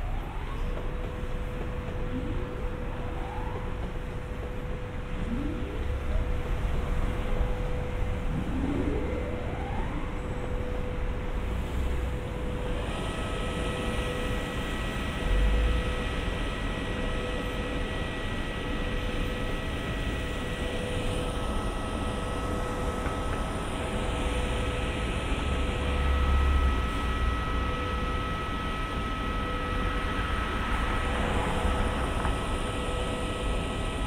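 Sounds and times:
train running noise: 0:00.0 - 0:13.4
electric whines: 0:01.7 - 0:22.8.

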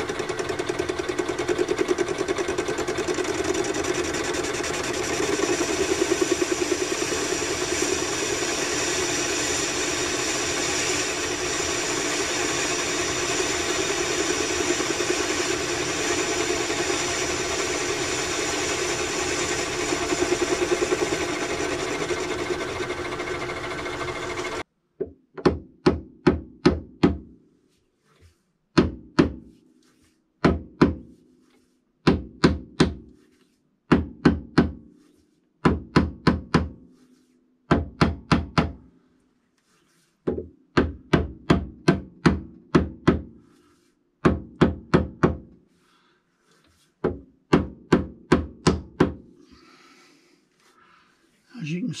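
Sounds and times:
metal lathe running: 0:00.0 - 0:24.6.

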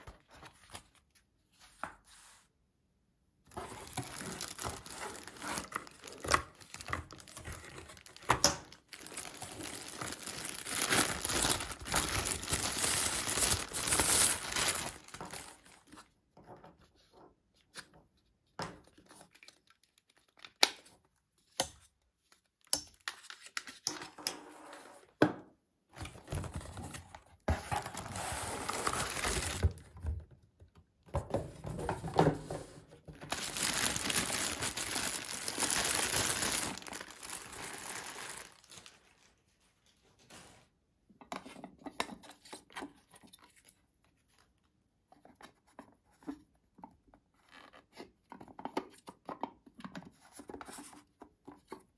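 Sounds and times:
plastic bag crinkling: 0:03.5 - 0:15.9, 0:27.9 - 0:29.8, 0:33.2 - 0:39.6.

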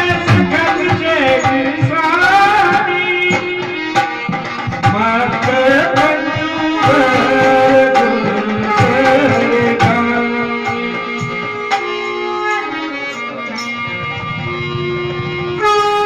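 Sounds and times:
held pitch-bending melody: 0:00.0 - 0:01.9, 0:06.2 - 0:16.0
hand drum playing quick rhythm: 0:00.0 - 0:05.4.

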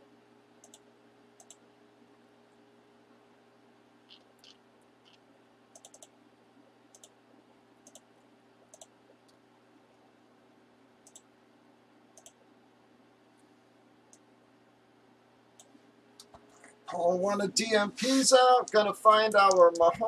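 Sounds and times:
low steady hum: 0:00.0 - 0:20.0
computer mouse clicks: 0:00.6 - 0:01.6, 0:04.1 - 0:06.2, 0:06.9 - 0:07.2, 0:07.8 - 0:09.4, 0:11.0 - 0:11.3, 0:12.2 - 0:12.4.

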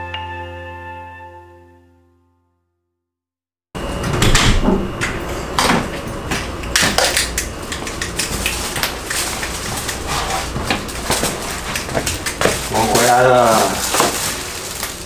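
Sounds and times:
plastic bags rustling: 0:08.3 - 0:15.0.

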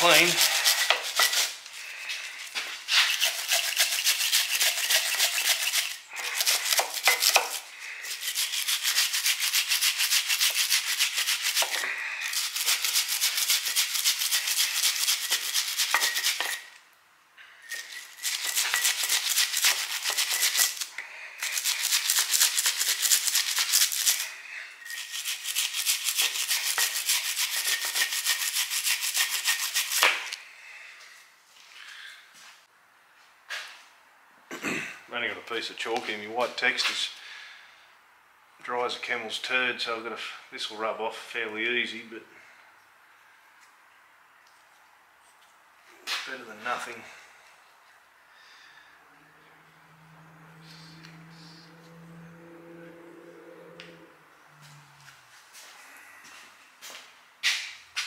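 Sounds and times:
wire brush scrubbing metal: 0:00.0 - 0:16.7, 0:17.7 - 0:30.4.

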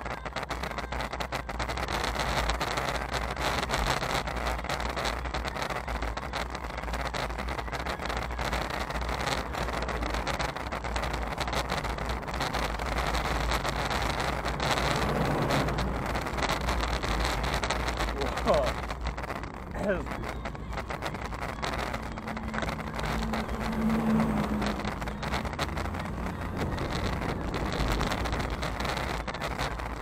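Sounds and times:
bicycle road noise: 0:00.0 - 0:30.0
cars passing: 0:00.0 - 0:30.0
wind rumble: 0:00.0 - 0:30.0.

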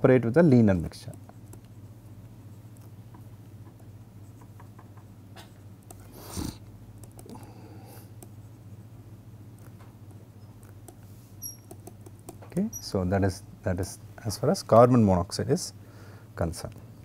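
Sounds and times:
steady low hum: 0:00.0 - 0:17.0
stylus tapping on tablet screen: 0:10.8 - 0:12.5.

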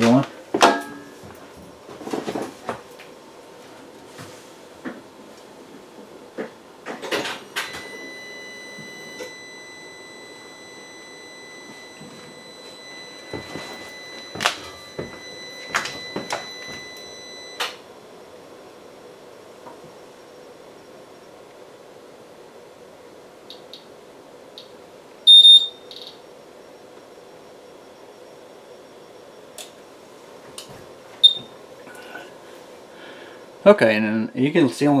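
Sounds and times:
high-pitched electronic tone: 0:07.6 - 0:17.7.

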